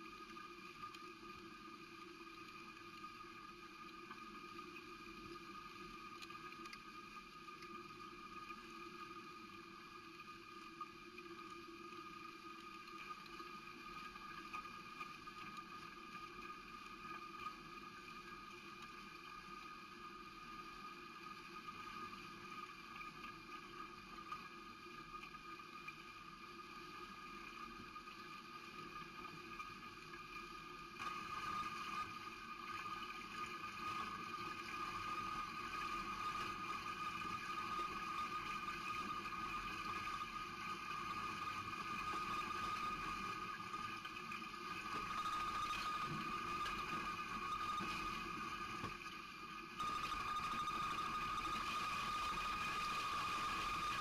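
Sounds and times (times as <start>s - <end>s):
steady high whine: 41.7s - 54.0s.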